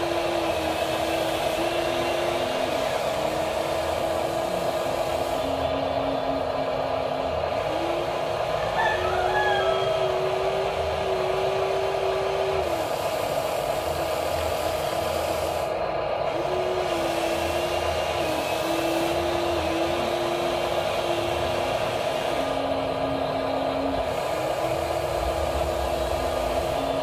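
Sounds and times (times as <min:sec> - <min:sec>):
electric motors whining: 0:00.0 - 0:27.0.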